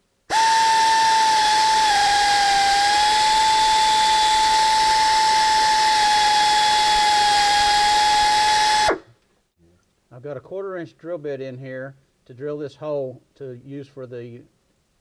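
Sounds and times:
drill whining: 0.3s - 9.0s.

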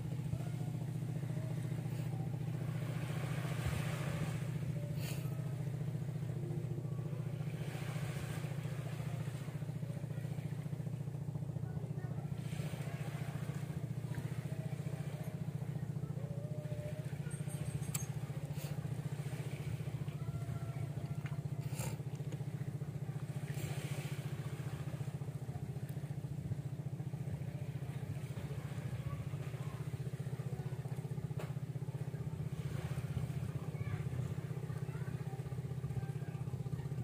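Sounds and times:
small engine chugging: 0.0s - 37.0s.

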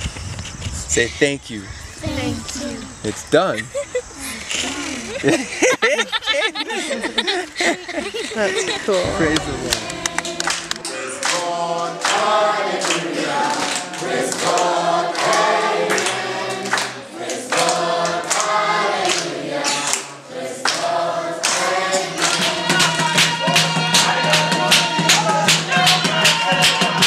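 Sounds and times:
group of voices singing: 6.6s - 27.0s
steady held tone: 8.3s - 11.7s
rhythmic hand-clapping: 9.0s - 27.0s.

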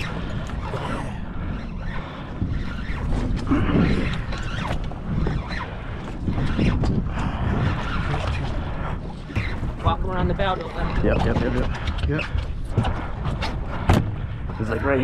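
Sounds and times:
fishing reel clicking and creaking: 0.0s - 8.6s.

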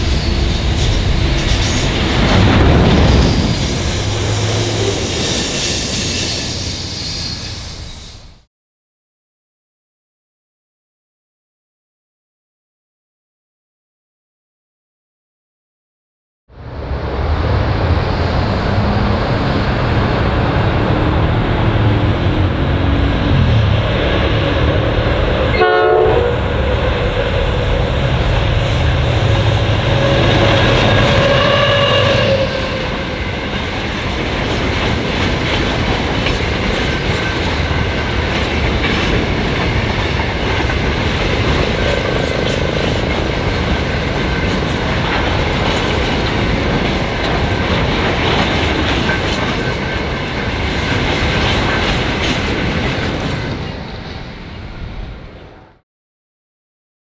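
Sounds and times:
diesel locomotive engines running hard: 0.0s - 8.0s, 16.6s - 55.3s
train wheels clacking over rail joints: 33.2s - 53.6s.

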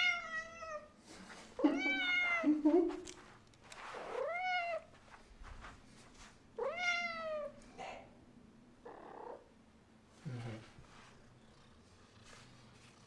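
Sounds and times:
cat meowing: 6.6s - 7.6s.

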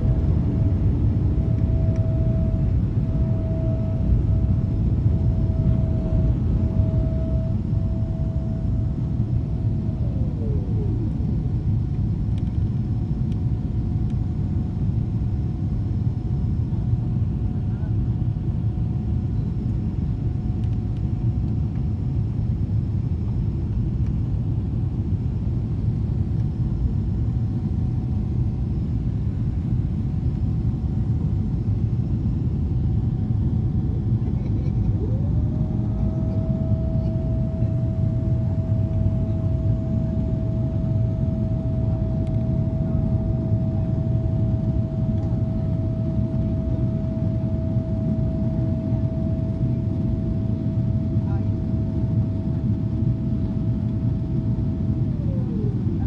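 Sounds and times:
jet engines roaring in cabin: 0.0s - 56.0s
steady high whine: 0.0s - 56.0s.

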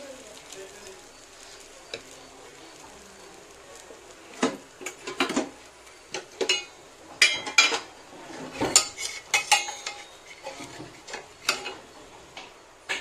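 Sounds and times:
batter sizzling on a hot pan: 0.0s - 13.0s
metal utensils clinking and scraping: 4.4s - 13.0s.

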